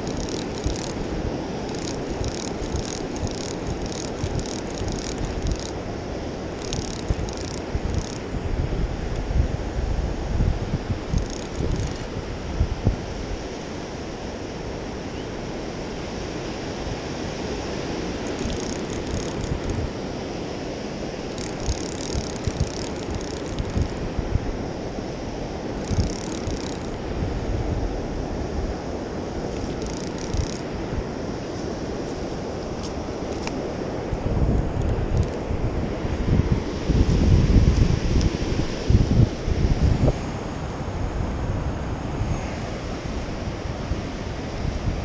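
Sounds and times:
fishing reel whirring: 0.0s - 8.3s, 11.0s - 12.1s, 17.7s - 19.9s, 21.2s - 24.2s, 25.6s - 27.0s, 29.6s - 30.7s, 34.7s - 35.4s
surf washing on the shore: 0.0s - 45.0s
wind buffeting the microphone: 0.0s - 45.0s.

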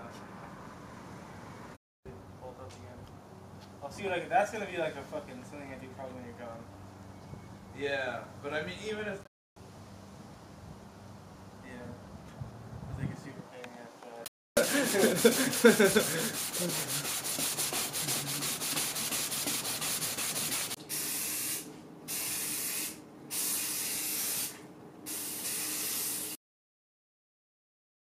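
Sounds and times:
aerosol spray can hissing: 14.6s - 26.4s.

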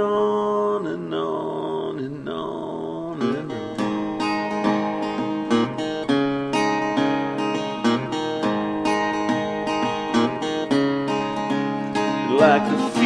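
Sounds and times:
acoustic guitar strumming chords: 2.8s - 13.0s.

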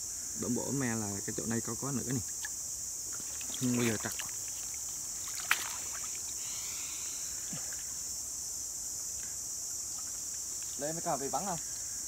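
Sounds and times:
high insect drone: 0.0s - 12.0s
water sloshing and splashing: 2.4s - 6.4s.

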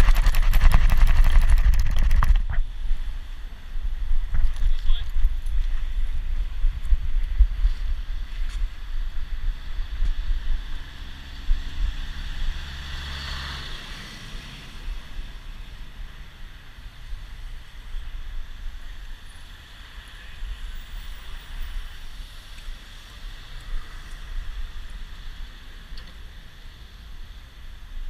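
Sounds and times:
wind buffeting microphone: 0.0s - 12.3s.

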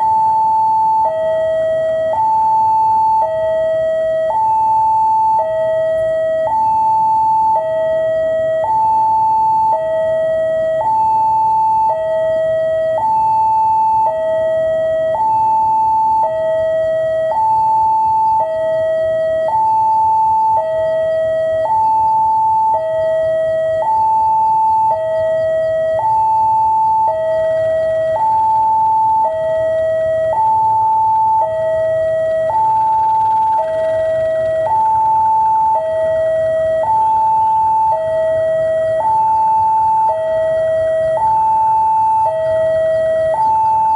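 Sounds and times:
two-tone railway warning alarm: 0.0s - 43.9s.

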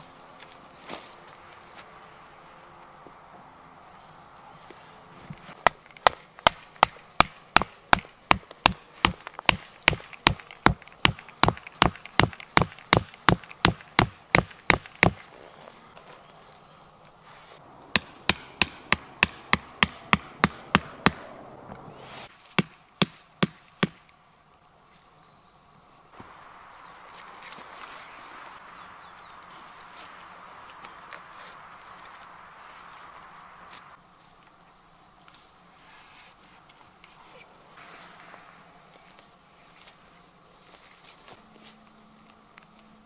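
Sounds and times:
stake hammered into ground: 5.6s - 15.2s, 18.0s - 21.2s, 22.5s - 24.1s.

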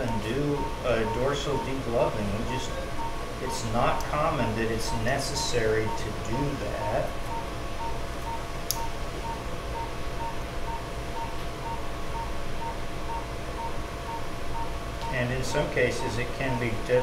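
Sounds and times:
low steady hum: 0.0s - 17.0s
patient monitor pulse beep: 0.0s - 17.0s.

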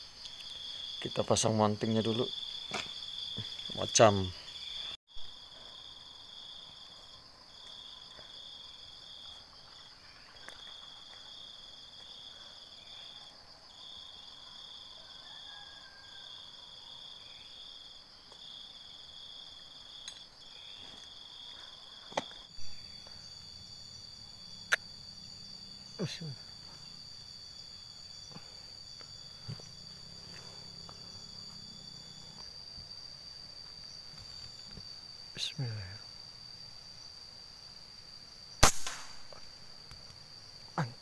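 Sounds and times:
high insect drone: 0.0s - 41.0s
insect trilling in pulses: 22.5s - 32.7s
sharp click: 38.6s - 39.3s.

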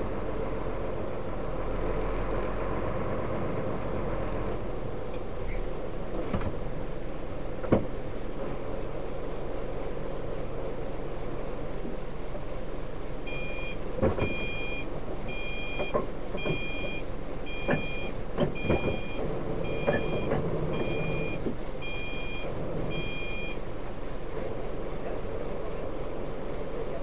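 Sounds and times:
diesel engine running: 0.0s - 27.0s
truck reversing alarm beeping: 13.3s - 23.6s.

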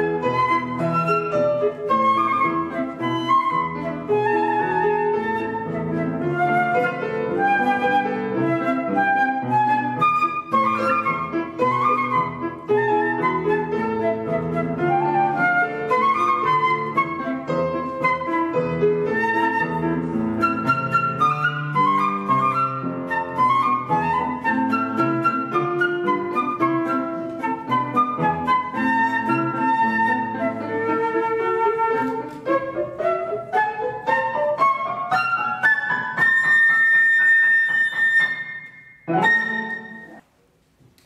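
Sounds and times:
flute melody: 0.0s - 40.3s
piano chords: 0.0s - 40.3s.

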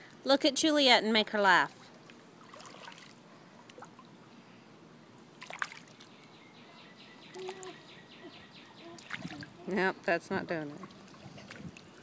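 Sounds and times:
water trickling and lapping: 1.8s - 12.0s
water splash: 2.4s - 3.2s, 5.4s - 6.1s.

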